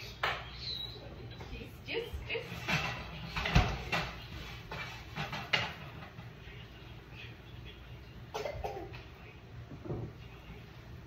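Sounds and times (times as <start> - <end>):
kitchen items knocking and clinking: 2.4 - 6.4.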